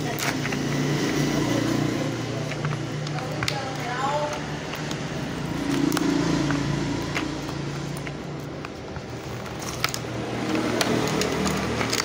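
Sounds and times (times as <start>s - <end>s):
plastic wrapping crinkling: 0.0s - 12.0s
scissors cutting plastic: 0.0s - 12.0s.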